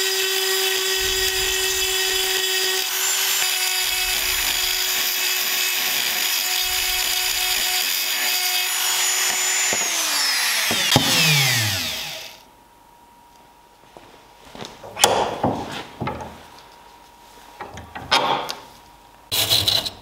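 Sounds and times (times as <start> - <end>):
rotary tool grinding steel: 0.0 - 12.4.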